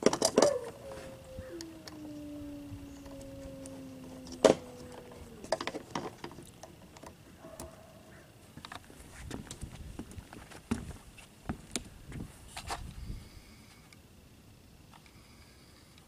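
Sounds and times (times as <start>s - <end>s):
steady hum falling in pitch: 0.0s - 8.5s.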